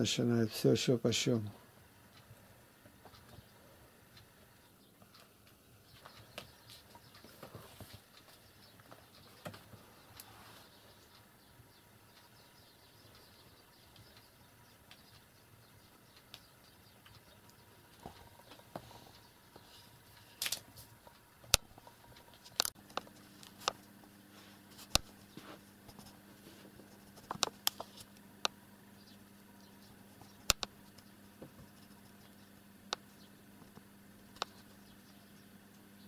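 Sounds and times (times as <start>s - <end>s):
faint low hum: 0.0s - 36.0s
sharp clicks and taps: 30.2s - 31.8s.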